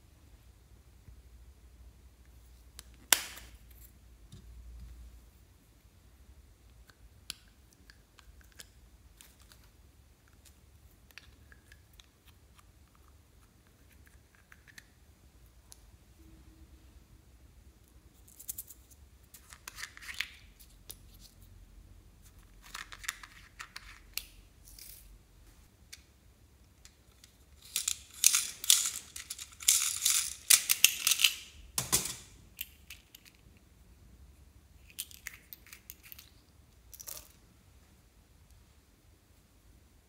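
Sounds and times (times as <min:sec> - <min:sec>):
plastic beads rattling: 0:27.1 - 0:33.4.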